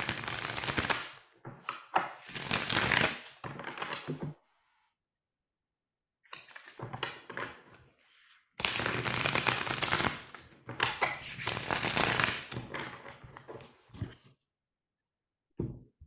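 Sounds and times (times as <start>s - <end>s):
riffle shuffling cards: 2.3s - 3.3s, 8.6s - 10.3s, 11.0s - 12.6s
cards tapping and sliding: 8.6s - 12.9s.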